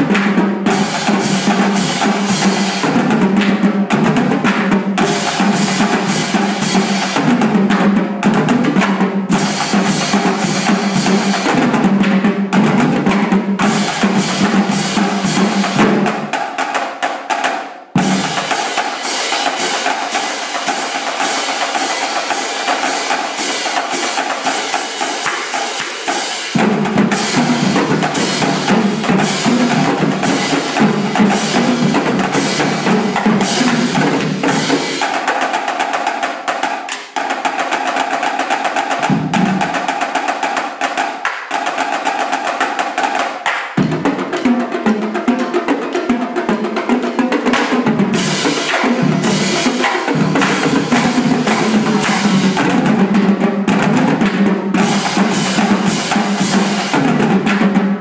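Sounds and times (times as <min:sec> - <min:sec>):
marching drumline cadence: 0:00.0 - 0:58.0.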